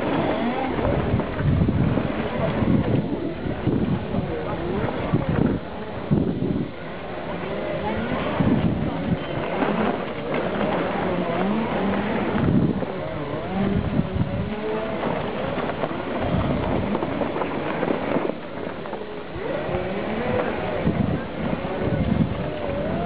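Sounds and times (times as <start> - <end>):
electric motors whining: 0.0 - 23.0
tyres rumbling on dirt trail: 0.0 - 23.0.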